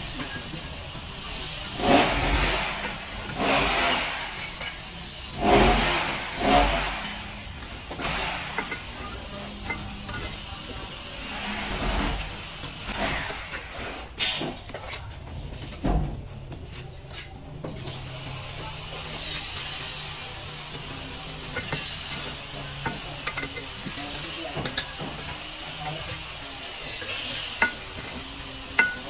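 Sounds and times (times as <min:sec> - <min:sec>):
bricks set into mortar: 0:20.7 - 0:29.0.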